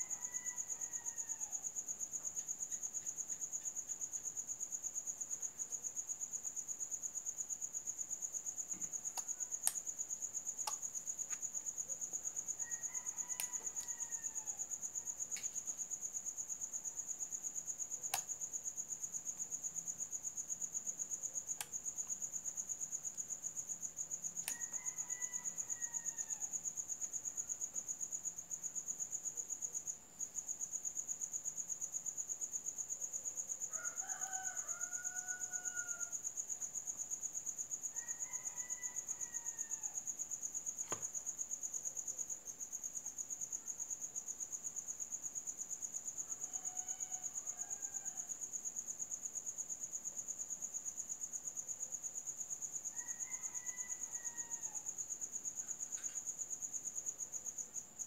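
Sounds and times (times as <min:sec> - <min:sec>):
rooster crowing: 0:00.0 - 0:01.8, 0:12.5 - 0:15.3, 0:24.4 - 0:26.7, 0:33.6 - 0:36.3, 0:37.9 - 0:40.1, 0:46.3 - 0:48.4, 0:52.9 - 0:55.0
crickets trilling: 0:00.0 - 0:58.0.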